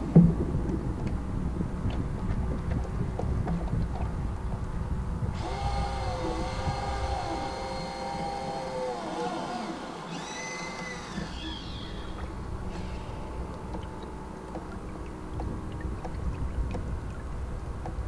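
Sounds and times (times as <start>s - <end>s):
low wind rumble: 0.0s - 8.9s, 11.0s - 18.0s
servo electric whine: 5.4s - 13.4s.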